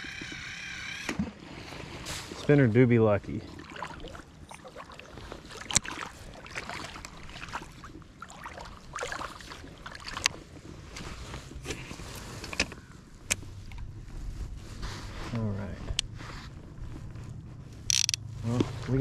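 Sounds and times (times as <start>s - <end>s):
splashing steps in shallow water: 3.5s - 10.3s
fishing reel clicks: 17.9s - 18.2s.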